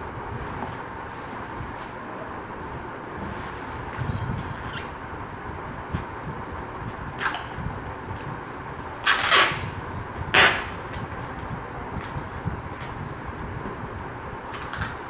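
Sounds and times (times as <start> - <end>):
packing tape ripping off roll: 9.0 - 11.4, 14.4 - 15.0.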